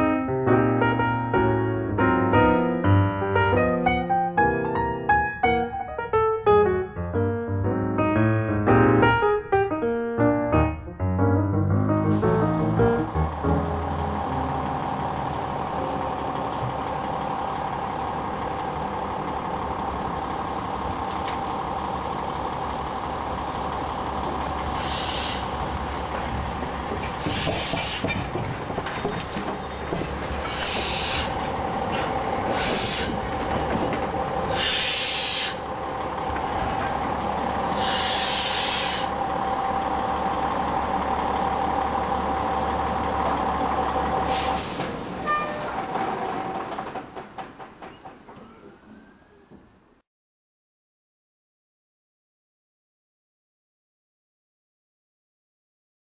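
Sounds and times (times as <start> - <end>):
heavy machinery drone: 12.0 - 49.0
bursts of hissing air: 24.8 - 25.6, 30.4 - 31.4, 32.4 - 33.2, 34.4 - 35.7, 37.6 - 39.2.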